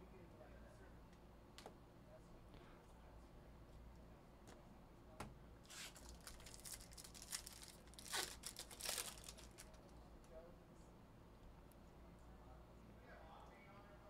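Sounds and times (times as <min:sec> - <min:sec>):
foil wrapper tearing and crinkling: 0:05.7 - 0:09.8.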